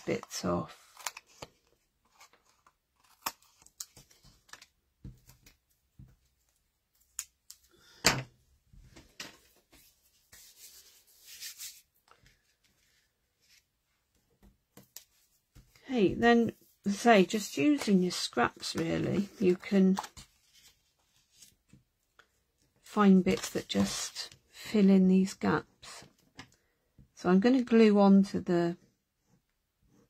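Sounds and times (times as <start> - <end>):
paper rustling: 9.1 - 13.7.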